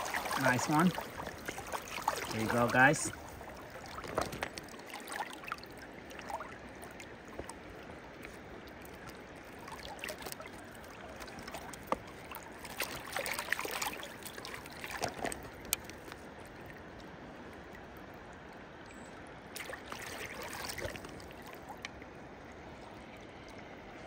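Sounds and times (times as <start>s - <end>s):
fish splashing in a net: 0.0s - 7.4s, 9.0s - 15.5s, 19.6s - 21.8s
river water flowing: 0.0s - 24.0s.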